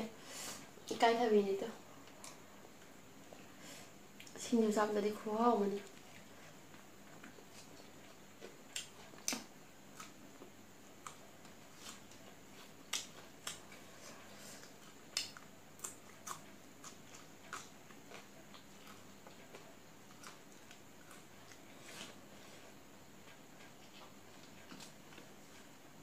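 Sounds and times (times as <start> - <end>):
chewing crunchy food: 5.8 - 25.8.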